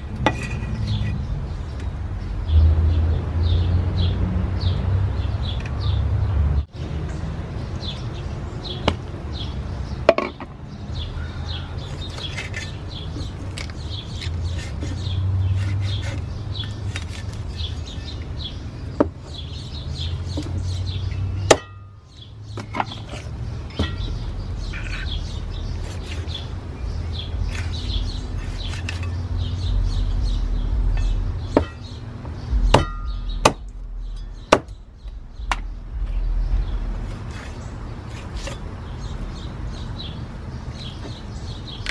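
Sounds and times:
birds chirping: 0.0 - 41.9
cleaver chopping on wooden block: 21.5 - 21.9, 31.5 - 31.9, 32.6 - 33.7, 34.4 - 34.8.

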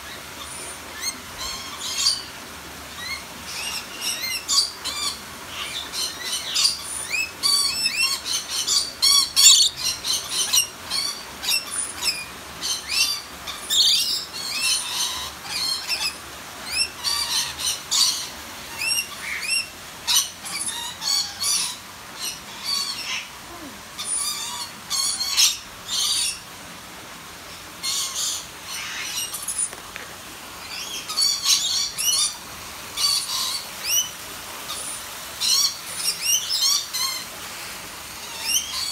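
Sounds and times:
lorikeets screeching and chattering: 3.0 - 26.4.

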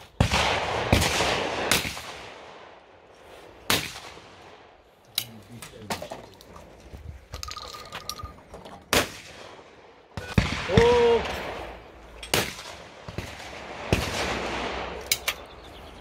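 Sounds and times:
shotgun shots: 0.0 - 2.7, 3.7 - 4.6, 8.9 - 15.2.

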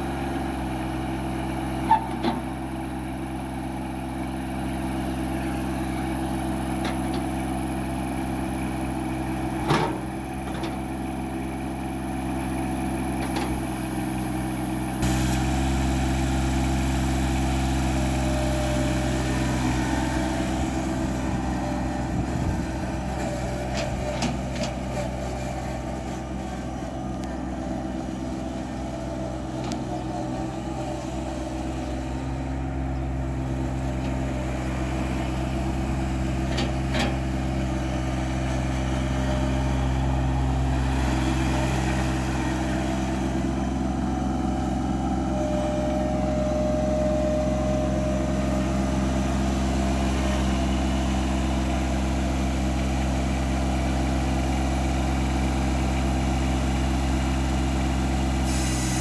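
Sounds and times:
diesel tractor engine running: 0.0 - 59.0.

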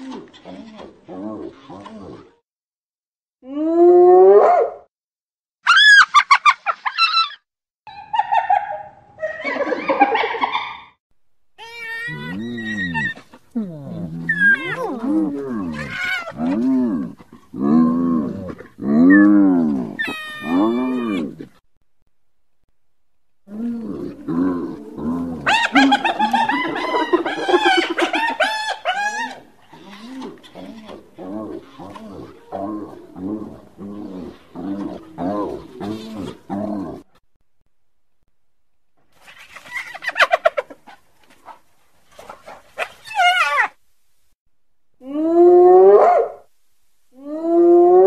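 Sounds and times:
hyenas calling: 11.6 - 16.6, 19.0 - 21.4, 23.7 - 37.0.

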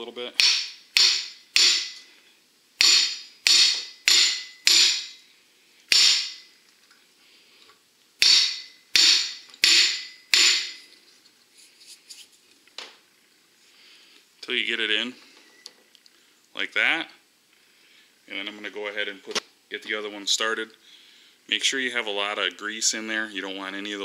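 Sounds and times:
hammer striking steel: 0.4 - 2.1, 2.8 - 5.2, 5.9 - 6.6, 8.2 - 10.9.

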